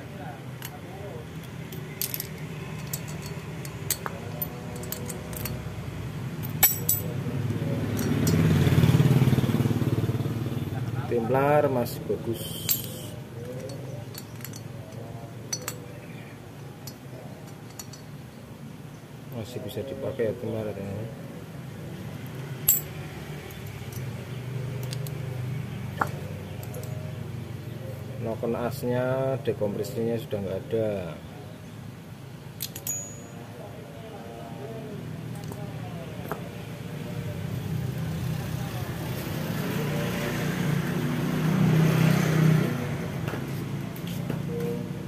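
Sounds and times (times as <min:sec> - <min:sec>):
light metal clinks and knocks: 0:01.4 - 0:05.8, 0:06.4 - 0:07.2, 0:07.9 - 0:08.6, 0:12.6 - 0:16.1, 0:16.7 - 0:18.2, 0:22.1 - 0:24.2, 0:32.6 - 0:33.4.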